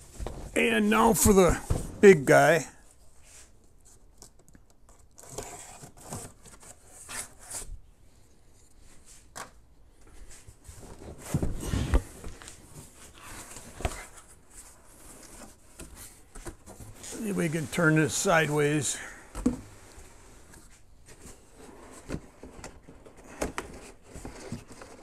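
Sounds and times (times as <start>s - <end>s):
tape tearing: 5.0s - 7.7s
cardboard scraping and sliding: 10.7s - 15.6s.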